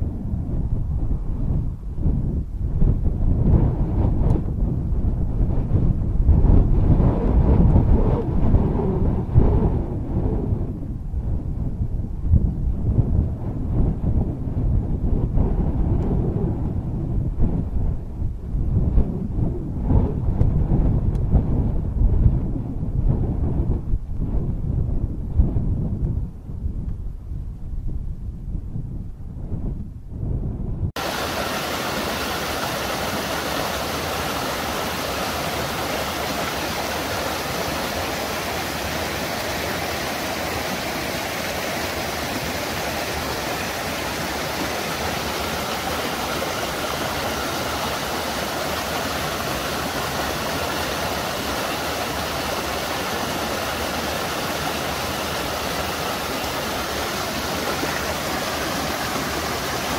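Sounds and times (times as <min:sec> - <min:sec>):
river water rushing over rocks: 0:31.0 - 0:59.9.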